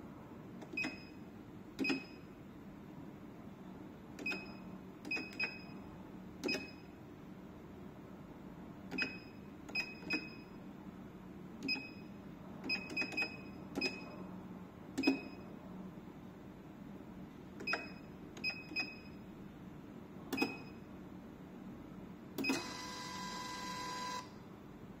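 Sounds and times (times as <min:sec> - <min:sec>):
receipt printer running: 0:22.5 - 0:24.2.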